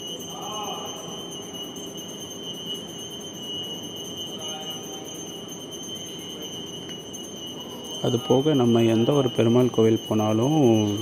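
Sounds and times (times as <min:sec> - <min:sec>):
temple bell ringing: 0:00.0 - 0:11.0.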